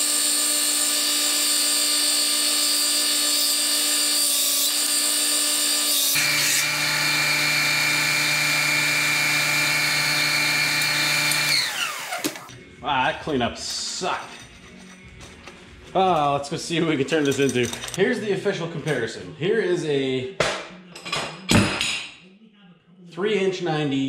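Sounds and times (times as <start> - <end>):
belt sander motor hum: 0.0 - 12.5.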